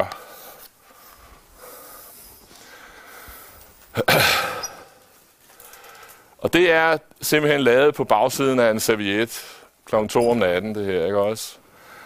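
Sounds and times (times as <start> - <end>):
faint room noise: 0.0 - 12.0
man snorting through nose: 4.0 - 5.0.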